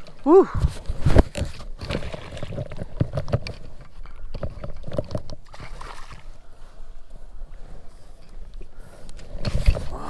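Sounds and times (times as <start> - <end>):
knocks and clicks against kayak: 0.0 - 5.9.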